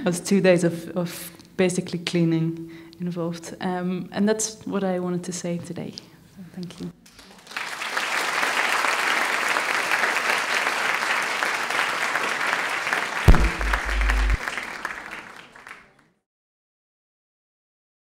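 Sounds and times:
audience applauding: 7.2 - 16.0
low thump with rumble: 13.3 - 14.4.

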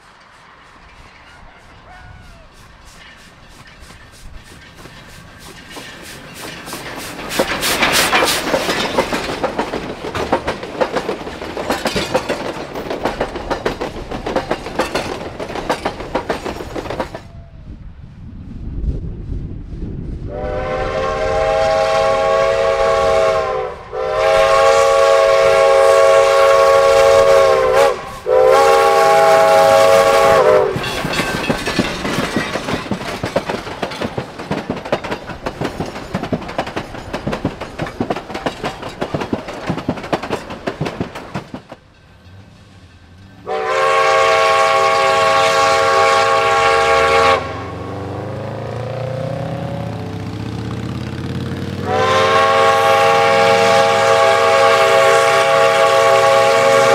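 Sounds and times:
train wheels clattering over rail joints: 0.0 - 1.8, 2.5 - 17.3, 24.2 - 43.5
steam locomotive whistle: 20.3 - 31.2, 43.4 - 49.9, 51.8 - 56.9.

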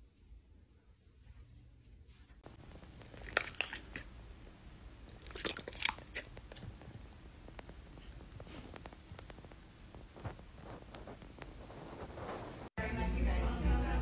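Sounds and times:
chewing crunchy food: 2.7 - 4.2, 5.1 - 6.9.

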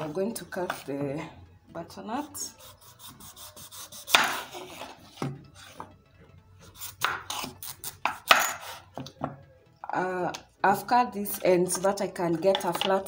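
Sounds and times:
knife slicing squash: 2.5 - 5.2, 6.7 - 8.8.

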